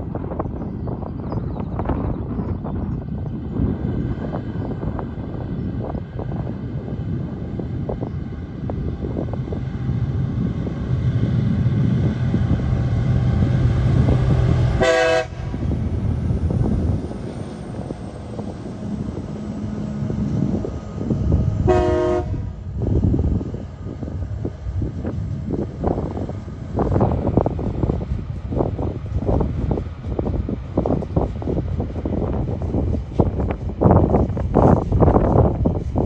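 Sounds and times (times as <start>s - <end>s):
freight train rumbling past: 0.0s - 36.0s
train horn blasts: 14.7s - 15.6s, 21.6s - 22.5s.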